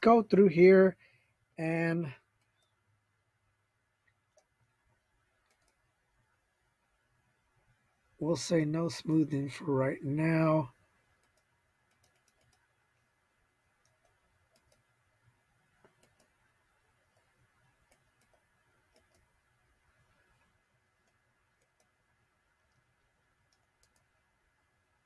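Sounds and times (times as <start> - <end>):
faint room hum: 0.0 - 25.0
computer mouse clicks: 5.4 - 5.9, 11.2 - 12.8, 13.8 - 14.9, 15.8 - 16.4, 17.1 - 19.4, 21.0 - 22.0, 22.6 - 24.2.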